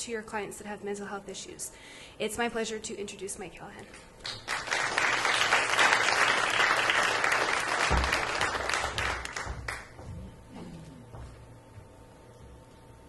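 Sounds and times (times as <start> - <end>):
audience applauding: 4.2 - 10.0.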